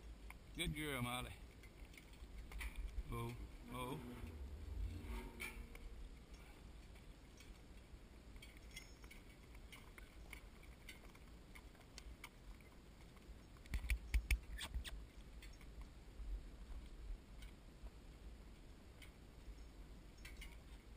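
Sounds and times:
hooves walking on dirt: 0.0s - 20.9s
harness and cart clicks: 1.3s - 15.9s, 18.6s - 20.9s
low thumps: 3.0s - 6.2s.

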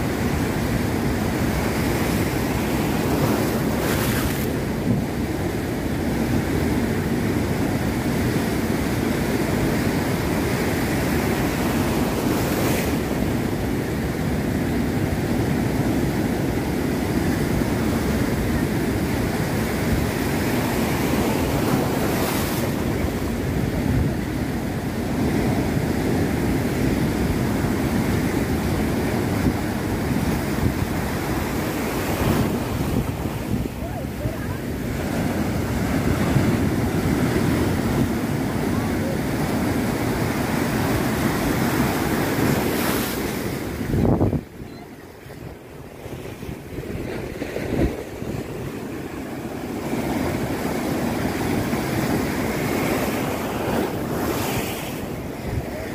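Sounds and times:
wind buffeting microphone: 15.2s - 55.9s.

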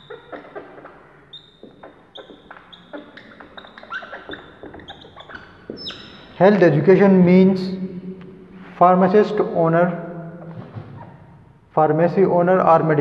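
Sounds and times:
marker squeaking on whiteboard: 0.0s - 6.8s, 10.4s - 11.4s.

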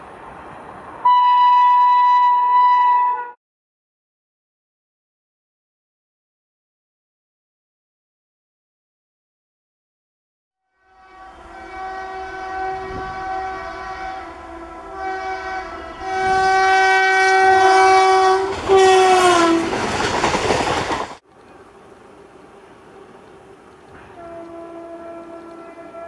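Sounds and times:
train horn blasts: 1.0s - 3.4s, 10.6s - 19.8s, 22.6s - 26.0s
train coaches rushing past: 11.0s - 26.0s.

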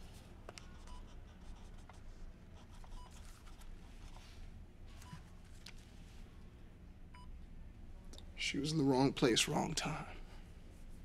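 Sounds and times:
pen scratching on notepad: 0.6s - 2.0s.

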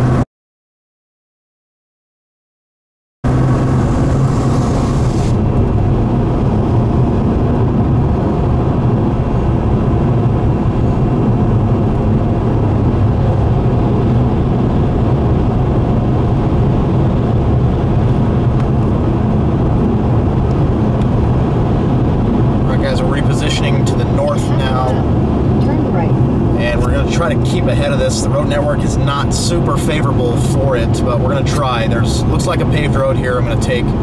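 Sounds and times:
car engine and road noise rumble: 0.0s - 0.2s, 3.2s - 34.0s.

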